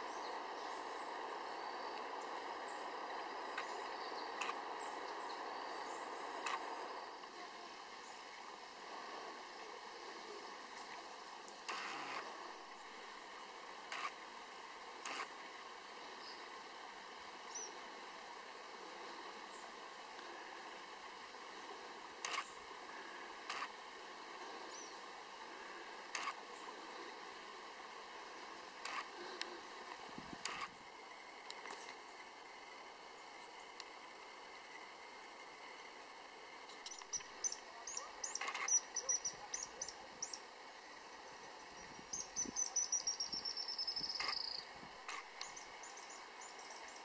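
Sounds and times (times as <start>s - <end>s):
forest birds calling: 0.0s - 33.8s, 36.7s - 47.0s
faint steady hum: 0.0s - 47.0s
outdoor background hiss: 0.0s - 47.0s
high bird chirps: 36.9s - 40.4s, 42.1s - 44.6s.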